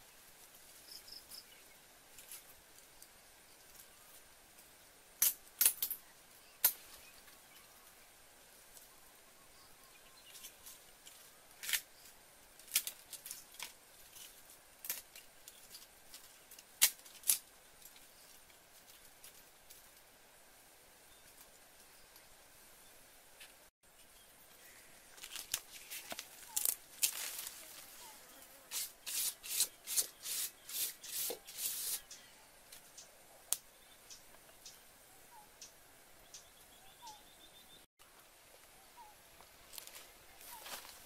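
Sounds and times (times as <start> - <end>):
faint outdoor hiss: 0.0 - 41.0
twig fire snapping: 12.6 - 18.0.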